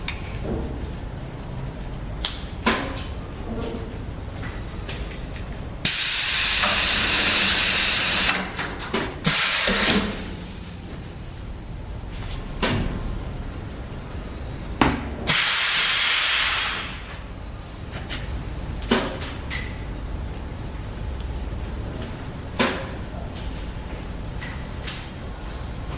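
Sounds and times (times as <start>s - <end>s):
low machine hum: 0.0s - 15.4s, 16.4s - 25.9s
hot press hissing: 5.8s - 8.4s, 15.3s - 17.0s.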